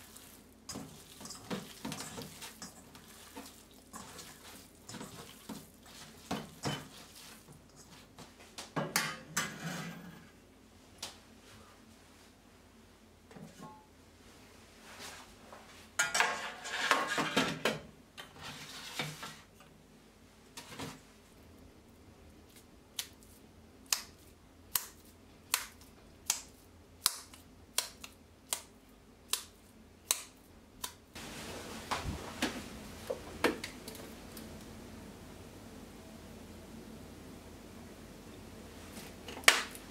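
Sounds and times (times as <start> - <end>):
meat slapping between palms: 22.5 - 31.1.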